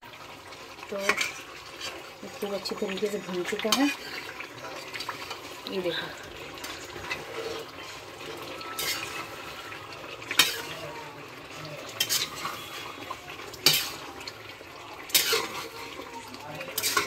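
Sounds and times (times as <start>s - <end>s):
metal spatula scraping pan: 0.9s - 10.9s, 11.8s - 14.2s, 15.1s - 17.0s
spatula clinking on pan: 12.0s - 12.6s, 16.8s - 17.0s.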